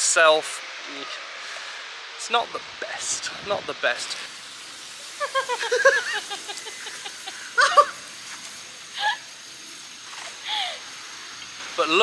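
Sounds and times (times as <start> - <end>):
man laughing and whooping: 5.0 - 8.2.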